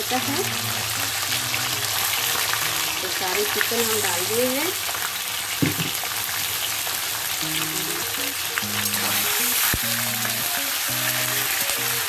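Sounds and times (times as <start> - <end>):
background music with held notes: 0.0 - 5.1, 7.4 - 12.0
chicken sizzling in oil: 0.0 - 12.0.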